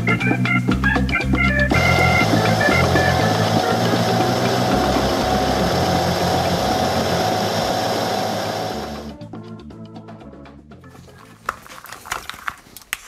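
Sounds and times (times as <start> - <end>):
background music: 0.0 - 12.6
metal lathe cutting metal: 1.7 - 9.1.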